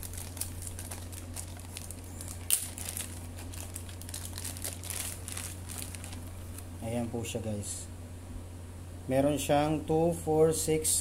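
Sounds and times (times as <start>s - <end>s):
plastic bag crinkling: 0.0s - 6.8s.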